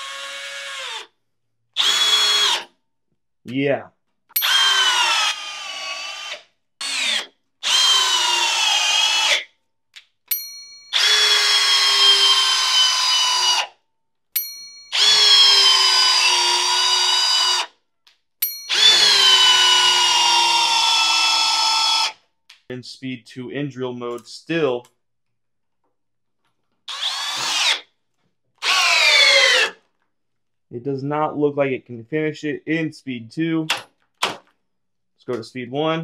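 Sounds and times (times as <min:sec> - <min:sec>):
cordless drill driving screws: 0:00.0 - 0:01.1, 0:01.8 - 0:02.7, 0:04.4 - 0:09.5, 0:10.9 - 0:13.7, 0:14.9 - 0:17.7, 0:18.7 - 0:22.2, 0:26.9 - 0:27.8, 0:28.6 - 0:29.8.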